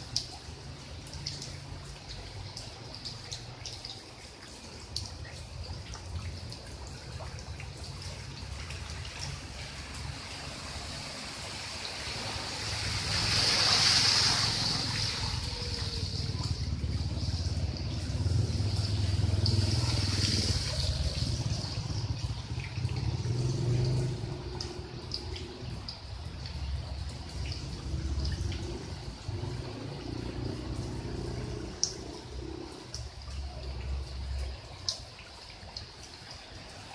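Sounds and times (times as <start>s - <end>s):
rain falling on water: 0.0s - 36.9s
water dripping and trickling: 0.0s - 36.9s.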